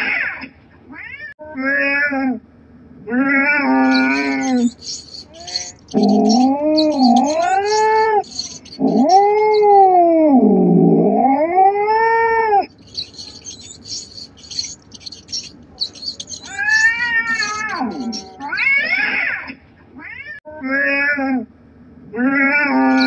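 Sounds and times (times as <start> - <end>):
cat yowling: 3.5 - 10.0, 12.9 - 18.9
faint high ticking: 3.8 - 9.9, 12.7 - 18.5.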